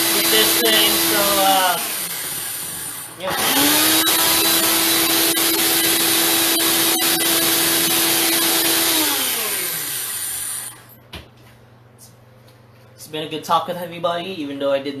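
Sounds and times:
blender motor whine: 0:00.0 - 0:11.0.

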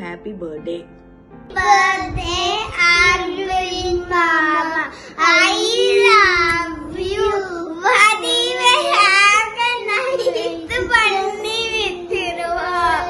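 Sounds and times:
young boy singing: 0:01.6 - 0:13.0.

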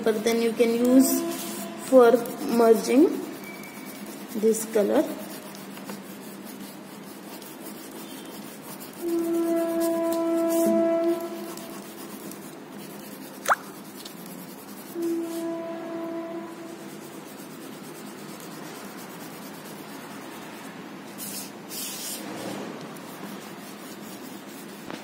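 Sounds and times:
fingers rubbing pastel on paper: 0:00.3 - 0:15.6, 0:16.5 - 0:25.0.

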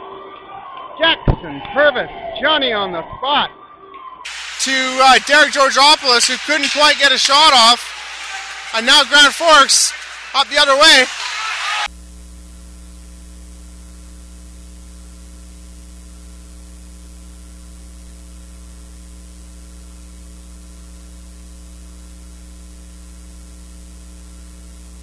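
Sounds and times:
faint hiss: 0:04.3 - 0:06.0
electrical mains hum: 0:04.3 - 0:25.0.

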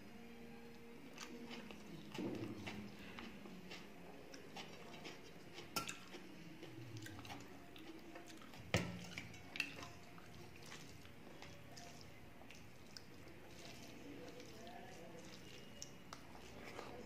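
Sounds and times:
faint chewing: 0:00.7 - 0:17.0
rice mixed by hand on steel plate: 0:13.4 - 0:17.0.

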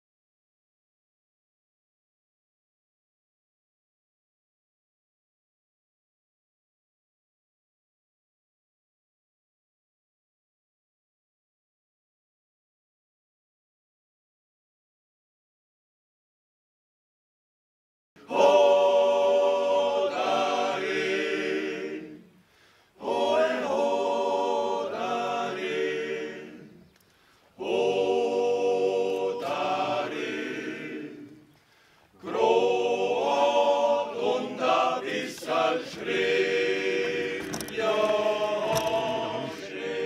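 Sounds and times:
men's choir singing a cappella: 0:18.2 - 0:26.9, 0:27.6 - 0:31.6, 0:32.2 - 0:40.0.

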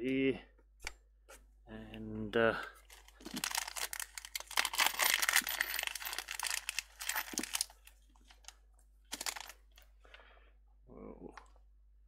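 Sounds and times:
paper sachet crinkling and tearing: 0:02.9 - 0:09.7.

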